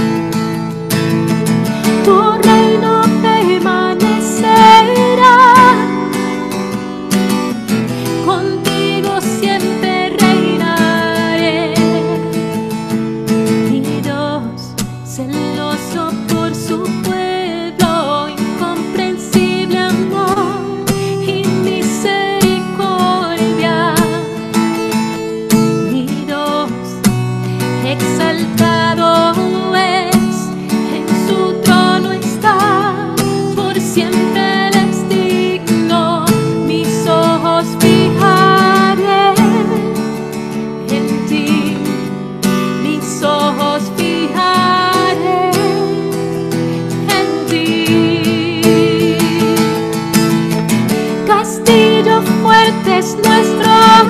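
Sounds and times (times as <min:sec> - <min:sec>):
acoustic guitar strumming: 0:00.0 - 0:54.0
woman singing with vibrato: 0:01.8 - 0:07.1, 0:07.9 - 0:12.7, 0:13.5 - 0:24.7, 0:25.6 - 0:54.0.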